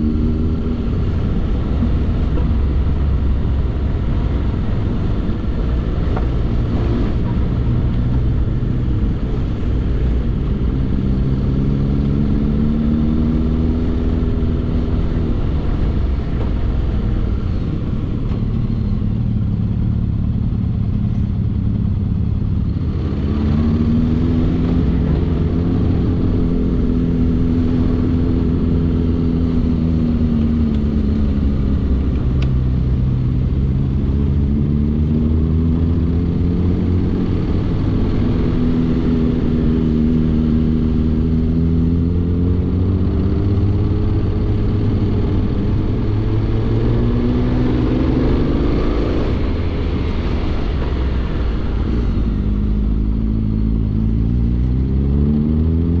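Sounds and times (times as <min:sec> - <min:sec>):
low rumble: 0:00.0 - 0:56.0
motorcycle engine revving: 0:22.4 - 0:56.0.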